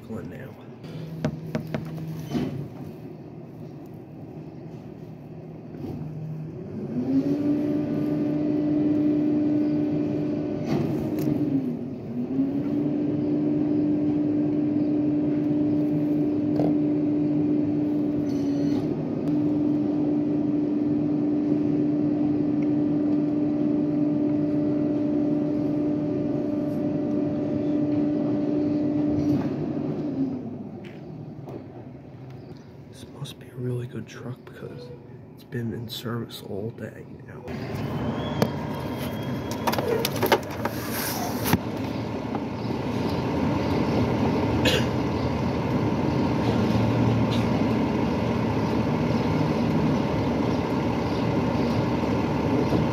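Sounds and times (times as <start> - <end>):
garbage truck engine revving: 5.3 - 30.8, 37.5 - 52.9.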